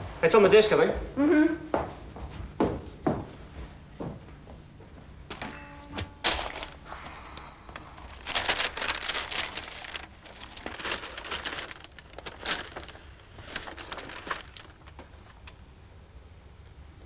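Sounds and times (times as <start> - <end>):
paper rustling and sliding: 6.2 - 6.8, 8.0 - 15.4.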